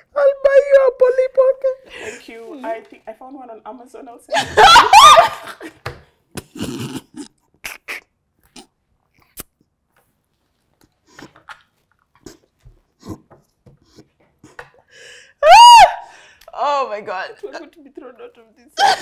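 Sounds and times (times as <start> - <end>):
women laughing breathily: 4.3 - 5.8.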